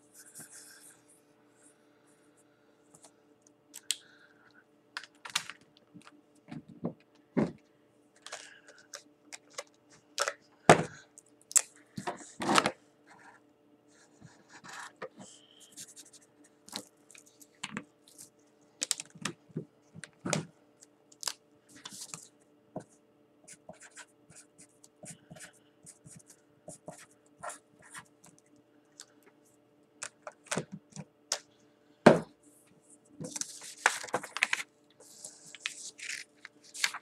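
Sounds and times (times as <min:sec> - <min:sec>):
faint steady hum: 0:00.0 - 0:37.0
markers tapping on paper: 0:23.5 - 0:28.1
paper sliding and rustling: 0:33.3 - 0:37.0.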